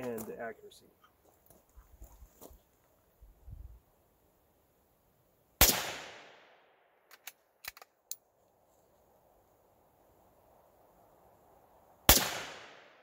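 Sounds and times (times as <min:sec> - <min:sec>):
rifle shot: 0:05.6 - 0:06.7, 0:12.1 - 0:13.0
rifle bolt metallic clicks: 0:07.1 - 0:08.2.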